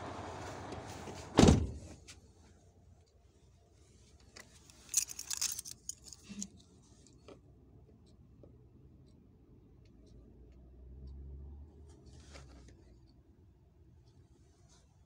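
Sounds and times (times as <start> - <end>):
outside noise: 0.0 - 15.0
truck door shutting: 1.3 - 1.8.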